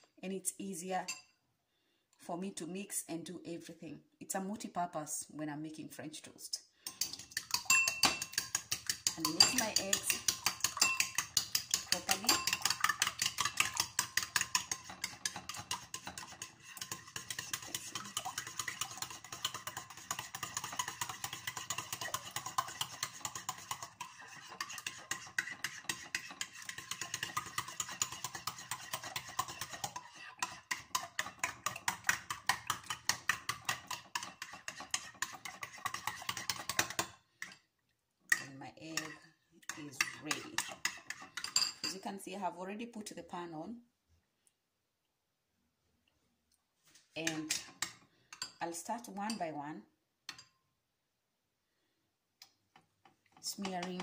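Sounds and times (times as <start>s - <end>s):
spoon clinking against bowl: 6.9s - 23.8s
eggs sloshing: 7.0s - 37.0s.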